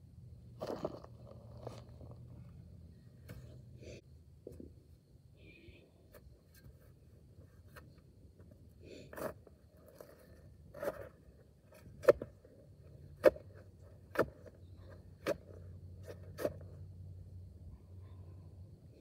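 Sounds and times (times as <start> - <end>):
shovel striking hard soil: 13.1 - 14.5.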